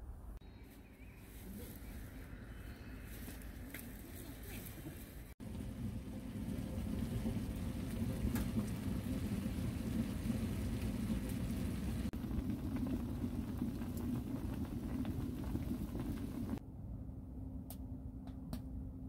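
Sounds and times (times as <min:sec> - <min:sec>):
water boiling hard in a tin: 0:05.4 - 0:16.6.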